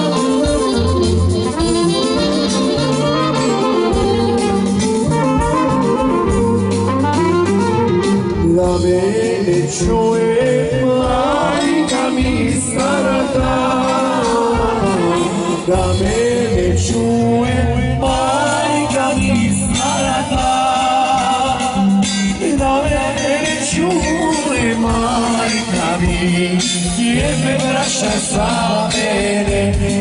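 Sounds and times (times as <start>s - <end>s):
folk band accompaniment: 0.0s - 30.0s
person singing folk song: 8.4s - 30.0s.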